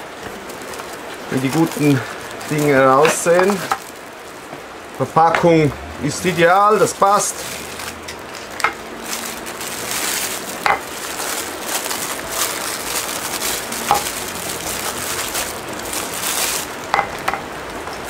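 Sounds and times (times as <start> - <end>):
plastic wrapping crinkling: 0.0 - 5.4, 6.1 - 18.0
sharp plastic crackles: 0.0 - 5.5, 6.2 - 18.0.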